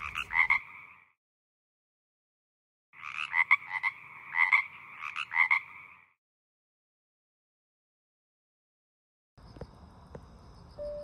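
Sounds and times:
frog croaking: 0.0 - 1.1, 3.0 - 6.2.

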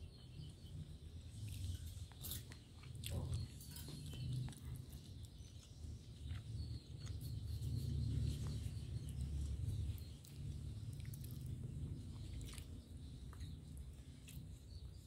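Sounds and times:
chewing and mouth sounds: 1.3 - 15.0.

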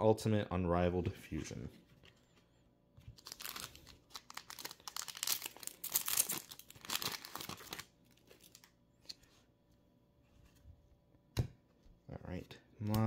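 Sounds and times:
foil wrapper crinkling and tearing: 3.2 - 8.7.

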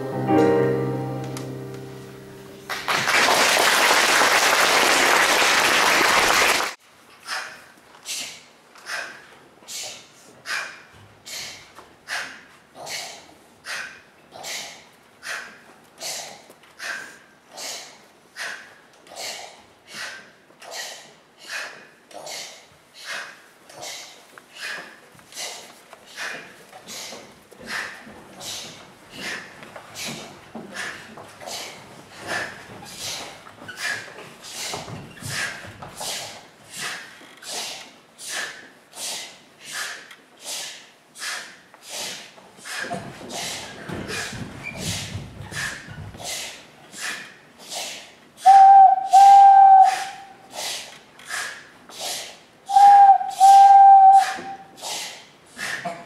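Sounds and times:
children making breathy huffs: 54.4 - 55.9.

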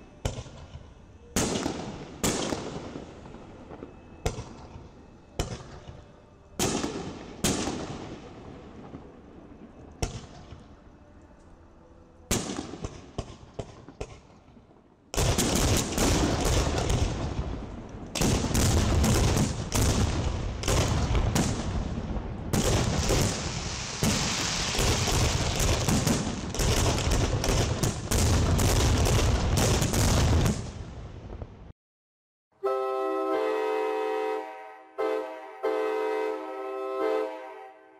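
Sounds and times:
fireworks bursts and bangs: 6.6 - 9.1, 15.2 - 30.8.

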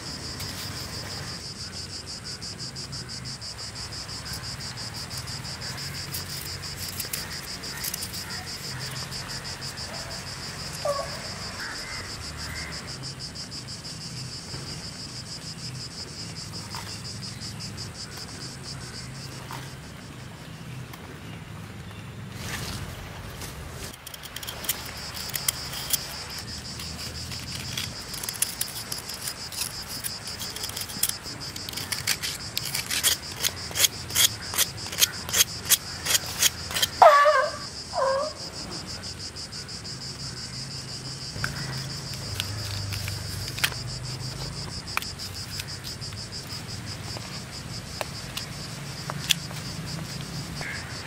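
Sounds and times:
insects chirring: 0.0 - 21.3, 21.9 - 51.0
knife scraping jaggery: 6.2 - 8.4, 24.0 - 37.0.

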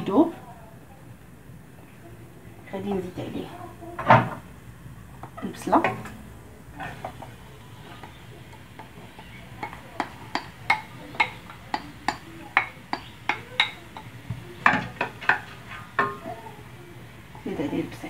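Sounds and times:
wooden spatula tapping ceramic bowl: 7.9 - 16.4.

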